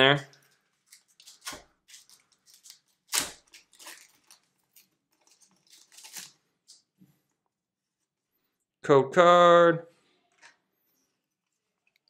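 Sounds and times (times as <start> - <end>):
foil wrapper crinkling: 0.3 - 6.8
foil wrapper tearing: 0.8 - 6.4.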